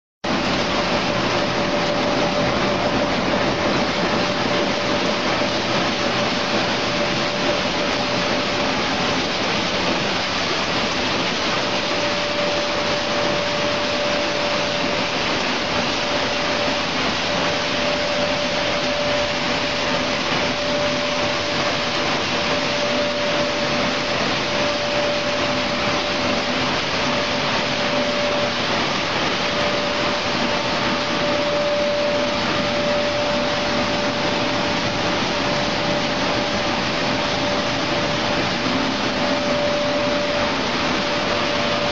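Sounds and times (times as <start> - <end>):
rushing machinery noise: 0.2 - 41.9
steady machine tone: 0.2 - 41.9.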